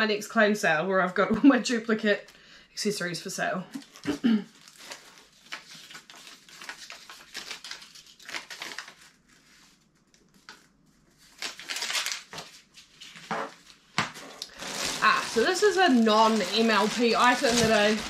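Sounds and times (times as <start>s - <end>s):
paper wrapping crinkling and tearing: 3.8s - 18.0s.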